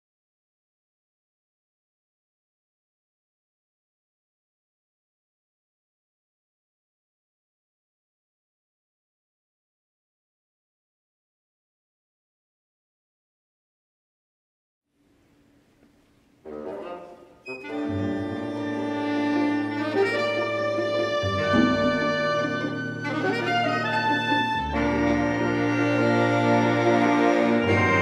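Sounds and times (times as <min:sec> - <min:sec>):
orchestra playing calypso piece: 0:17.8 - 0:28.0.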